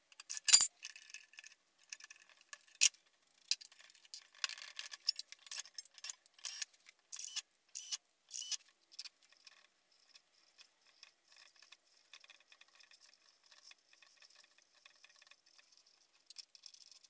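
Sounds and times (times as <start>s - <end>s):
metal clinks and scrapes: 0.2s - 1.2s.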